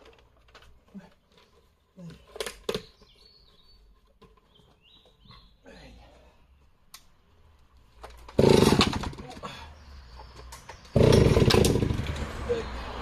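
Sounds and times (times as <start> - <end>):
chainsaw idling: 8.3 - 9.2, 11.0 - 12.2
chainsaw revving: 8.3 - 9.2, 10.9 - 12.5.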